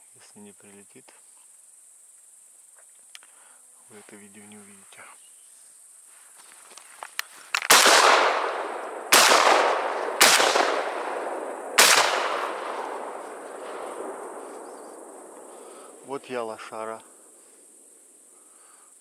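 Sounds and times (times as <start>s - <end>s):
faint clicks: 2.8s - 3.4s
shotgun shots with echo: 7.7s - 14.6s.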